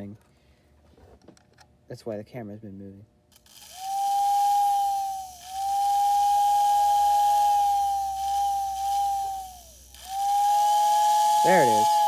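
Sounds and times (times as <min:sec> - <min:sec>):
motor-driven two-tone whistle: 0:03.6 - 0:12.0.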